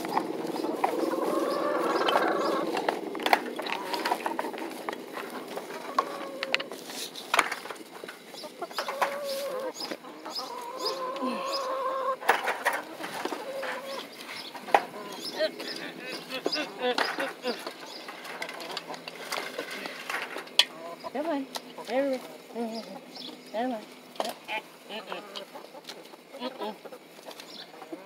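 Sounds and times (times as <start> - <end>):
hens clucking: 0.0 - 28.0.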